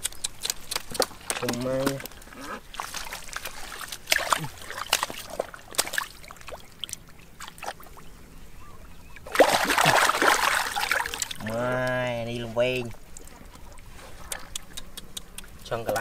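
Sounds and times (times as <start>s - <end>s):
hands squelching in muddy water: 0.0s - 7.9s, 9.2s - 11.5s
loud splashing: 2.8s - 6.5s, 9.3s - 11.5s.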